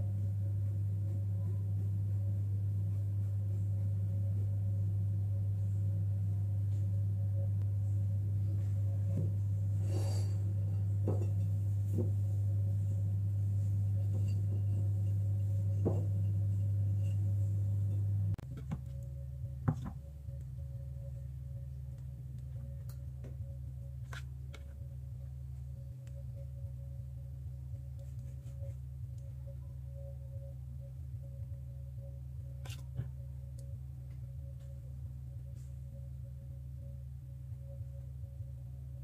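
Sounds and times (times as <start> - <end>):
low hum: 0.0 - 39.0
knife knocks and scrapes: 11.0 - 12.2.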